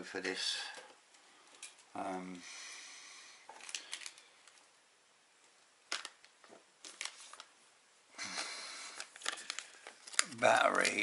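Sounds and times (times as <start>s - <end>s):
small items clicking and rustling: 3.5s - 4.6s, 8.4s - 11.0s.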